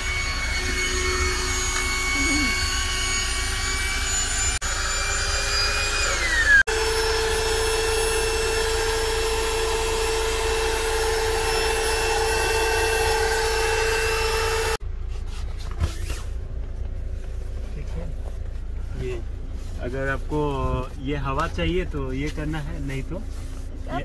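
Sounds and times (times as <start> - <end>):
air inflator motor whine: 0.0 - 14.8.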